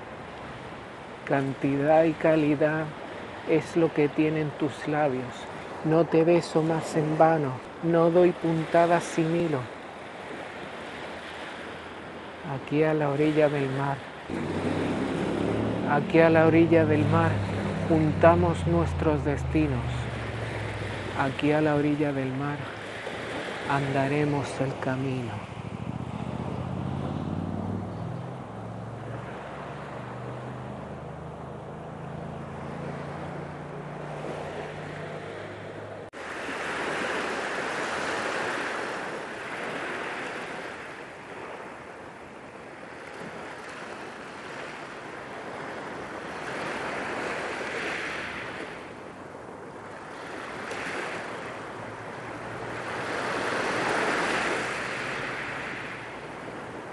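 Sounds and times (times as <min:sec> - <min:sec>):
waves on pebble beach: 0:00.0 - 0:56.9.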